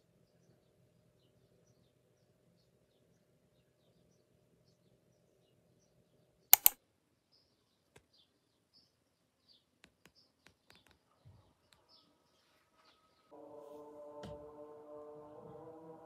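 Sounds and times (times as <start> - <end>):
sharp clicks: 6.6 - 6.8.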